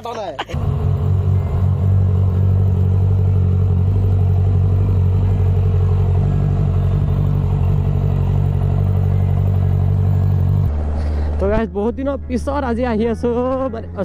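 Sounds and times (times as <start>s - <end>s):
motorcycle engine idling: 0.6s - 11.2s.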